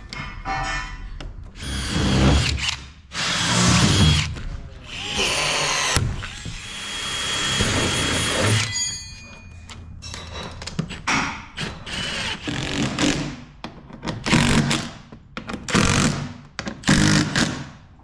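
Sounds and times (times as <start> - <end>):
cordless drill driving screws: 4.9 - 8.7.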